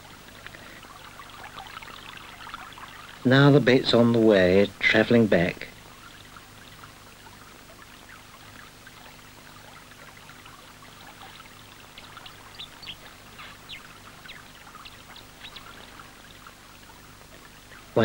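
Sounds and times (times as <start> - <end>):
river water running: 0.0 - 18.0.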